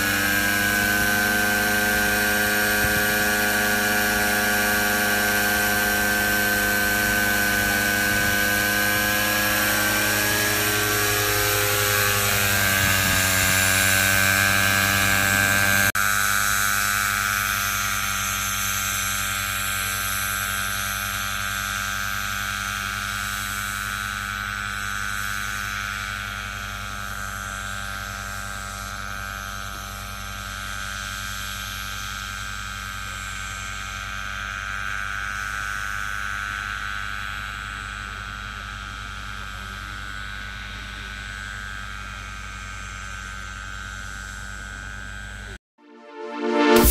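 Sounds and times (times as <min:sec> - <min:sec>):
multicopter rotors humming: 0:00.0 - 0:46.9.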